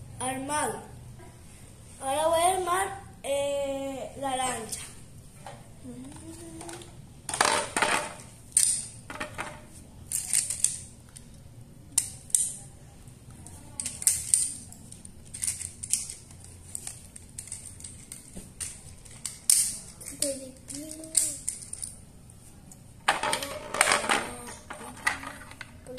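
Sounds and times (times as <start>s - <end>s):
plastic parts clattering: 6.6s - 10.9s, 13.8s - 22.0s, 23.1s - 25.7s
plastic toy parts clicking: 12.0s - 12.6s, 13.8s - 22.0s.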